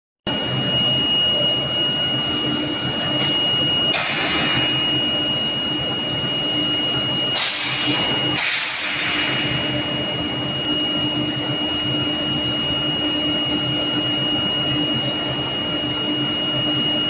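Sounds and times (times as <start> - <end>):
high-pitched machine whine: 0.3 - 17.0
low machine hum: 0.3 - 17.0.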